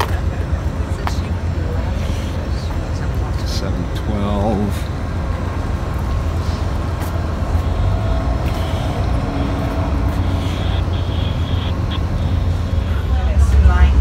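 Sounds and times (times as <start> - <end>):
train rumble and hum: 0.0 - 14.0
faint whines: 4.4 - 14.0.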